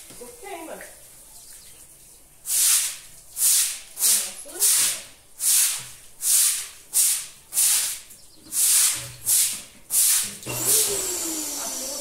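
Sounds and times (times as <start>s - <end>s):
steady hiss: 2.4s - 10.4s
broom sweeping cement floor: 2.4s - 10.8s.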